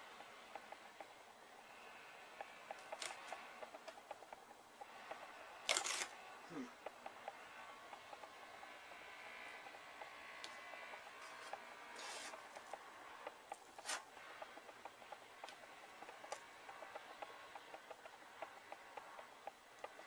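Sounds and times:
hands rubbing tape: 2.7s - 4.3s, 10.4s - 16.4s.

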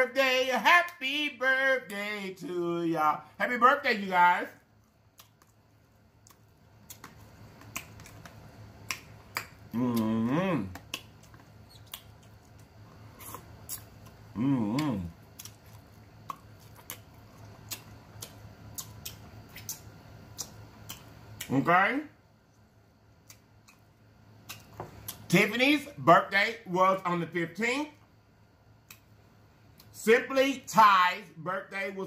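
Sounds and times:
wet mouth chewing smacks: 4.8s - 10.1s, 10.7s - 21.5s, 23.2s - 23.8s, 24.4s - 25.3s
person humming mmm: 9.7s - 11.0s, 13.2s - 15.2s.

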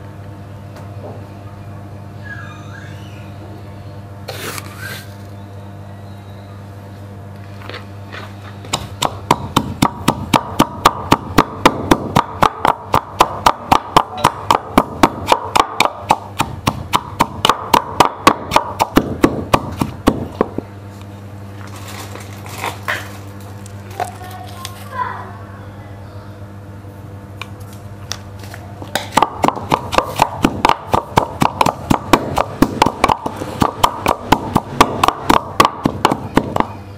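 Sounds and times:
pestle pounding in wooden mortar: 8.7s - 20.6s, 28.9s - 36.8s.

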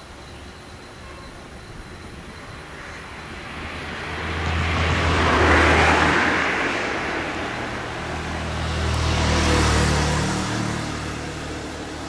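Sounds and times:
motor vehicle passing by: 3.4s - 12.0s.

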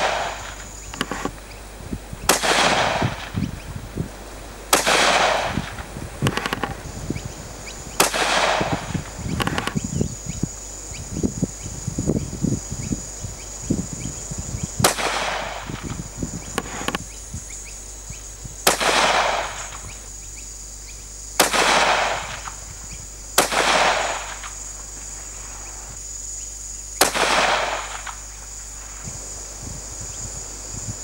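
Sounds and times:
rifle shots with echo: 0.0s - 1.2s, 2.3s - 3.4s, 4.7s - 6.8s, 8.0s - 9.7s, 14.8s - 15.8s, 18.6s - 19.9s, 21.4s - 22.6s, 23.4s - 24.6s, 27.0s - 28.3s.

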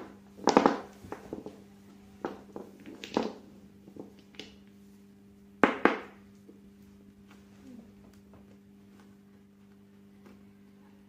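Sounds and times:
faint steady hum: 0.0s - 11.0s
paint bottles knocking on table: 5.6s - 6.2s.

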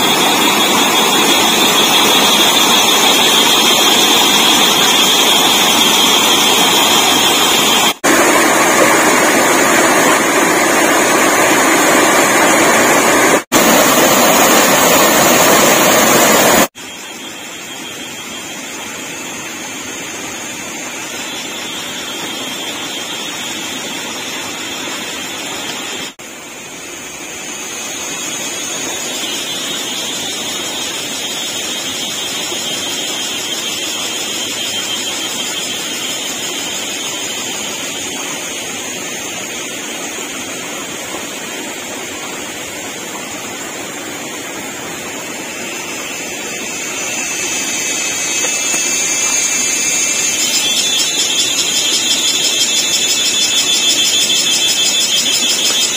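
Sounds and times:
waterfall rushing: 0.0s - 16.7s
thin high drone: 0.0s - 55.9s.

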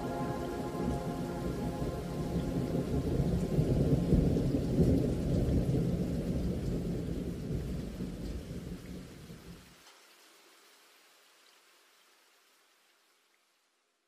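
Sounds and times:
thunder rumbling: 0.0s - 9.1s
rain: 0.0s - 14.0s.

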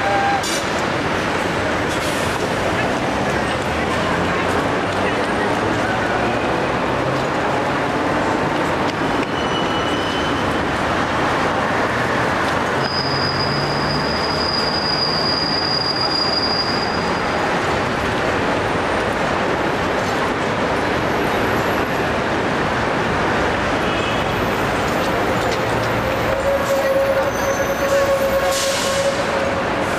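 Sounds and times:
street traffic: 0.0s - 29.9s
tram wheels squealing: 9.0s - 18.0s, 24.2s - 29.9s.

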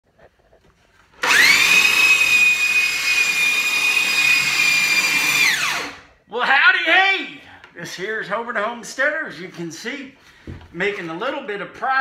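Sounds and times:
belt sander motor whining: 1.2s - 6.1s.

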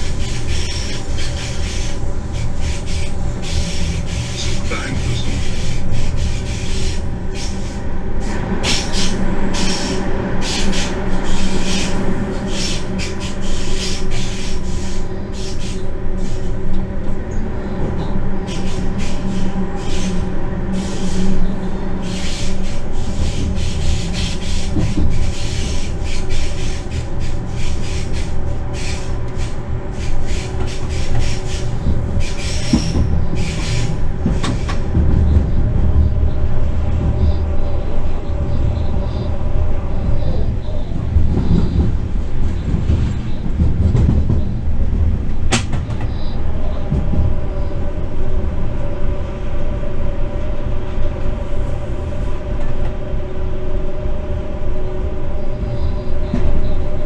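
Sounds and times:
locomotive low rumble: 0.0s - 57.0s.

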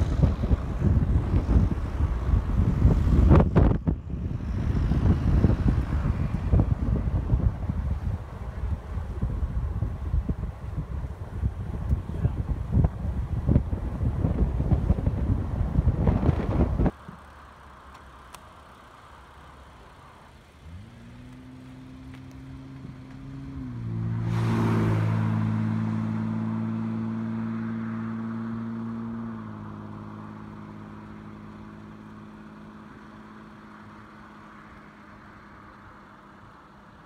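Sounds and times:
car passing: 0.0s - 37.0s.

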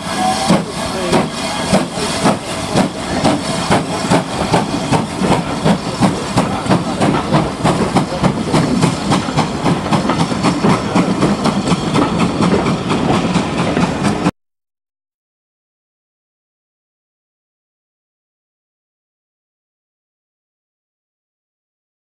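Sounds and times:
steam hissing: 0.0s - 14.3s
train wheels clattering: 0.1s - 14.3s.

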